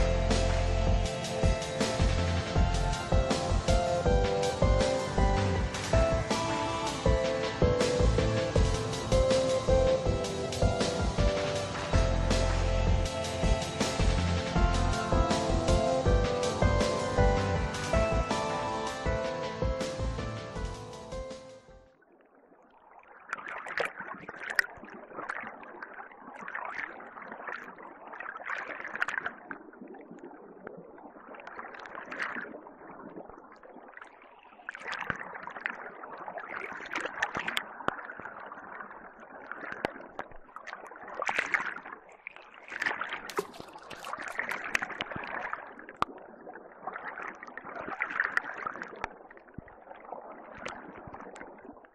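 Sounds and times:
water sloshing and gurgling: 0.0s - 51.9s
small water splashes: 22.0s - 51.9s.

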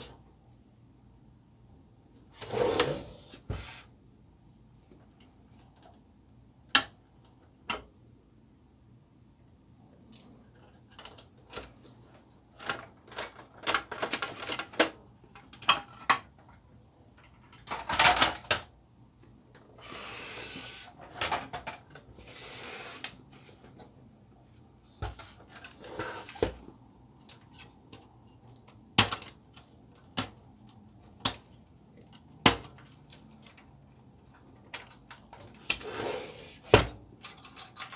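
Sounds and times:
printer parts clicking and rattling: 12.5s - 18.7s, 27.2s - 35.7s, 37.1s - 37.9s
loud clatter of parts: 17.3s - 18.7s.

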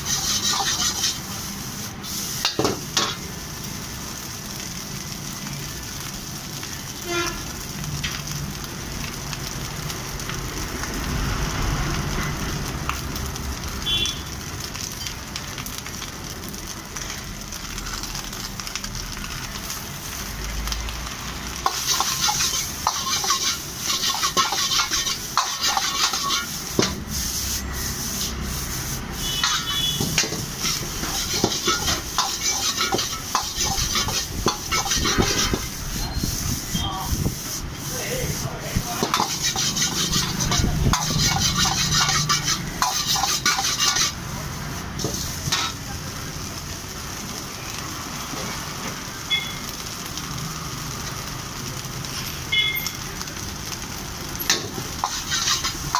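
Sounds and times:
rice sizzling: 0.0s - 55.9s
metal ladle clanking against wok: 29.4s - 35.6s.

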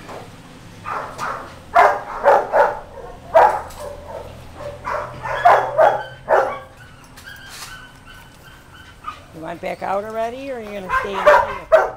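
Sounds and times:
dog barking: 0.8s - 6.8s, 10.9s - 11.9s.

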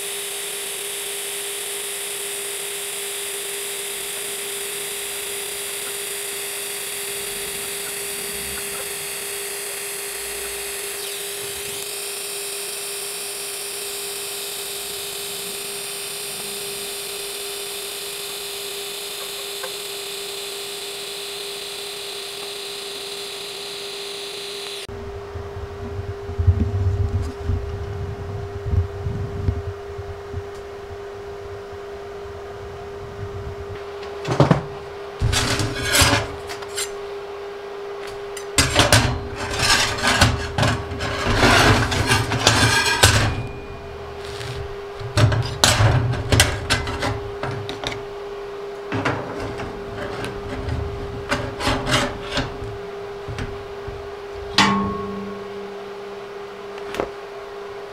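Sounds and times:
welding arc hissing: 0.0s - 24.9s, 38.1s - 53.2s
constant hum: 0.0s - 57.9s
handling knocks and rumbles: 33.7s - 36.7s, 38.5s - 48.2s, 48.8s - 56.2s.

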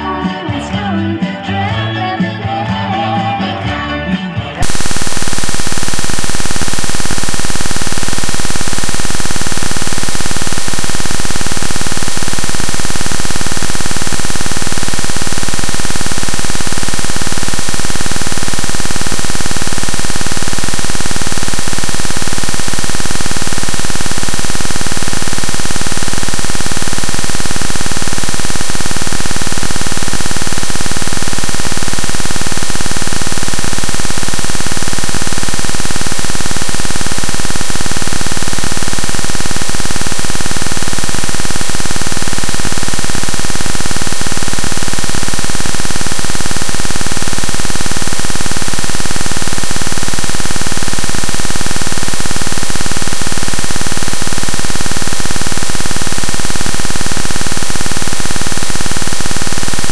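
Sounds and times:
steady tones: 4.6s - 47.3s
loud static noise: 4.6s - 59.9s.

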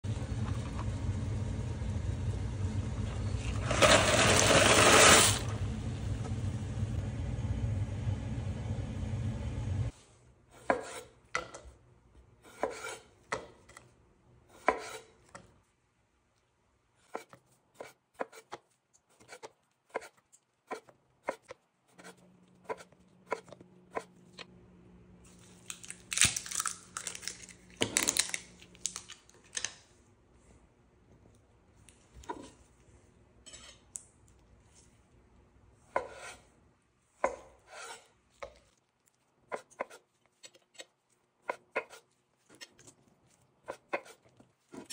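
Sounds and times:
knife slicing on wooden board: 37.2s - 38.6s.

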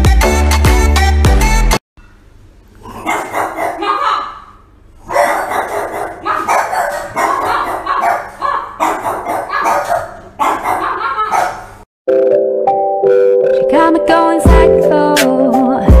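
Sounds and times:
dog barking: 2.8s - 11.8s.

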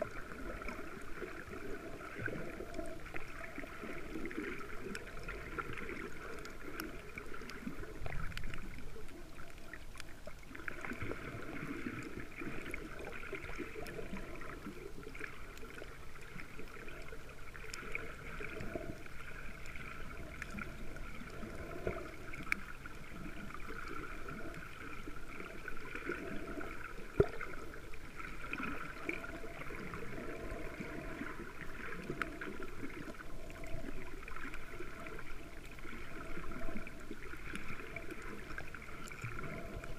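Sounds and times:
muffled underwater water noise: 0.0s - 39.9s
faint clicks: 4.4s - 11.0s, 12.0s - 24.7s.

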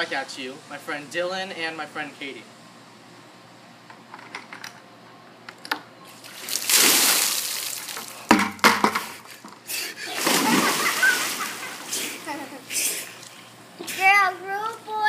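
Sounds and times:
ice water splashing on pool deck: 6.2s - 8.4s, 10.2s - 12.2s
body splashing into pool: 6.2s - 8.7s, 10.1s - 12.2s
sharp knocks: 8.3s - 9.1s.

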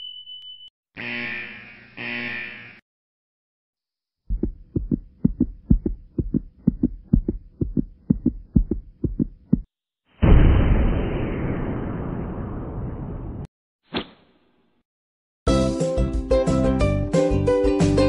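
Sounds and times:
heartbeat thumps: 4.3s - 9.7s.

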